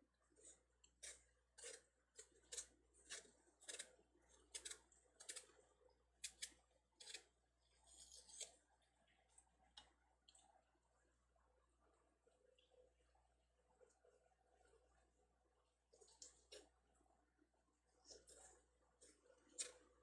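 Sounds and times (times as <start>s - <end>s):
knife scraping melon rind: 0.4s - 5.5s, 6.2s - 8.6s.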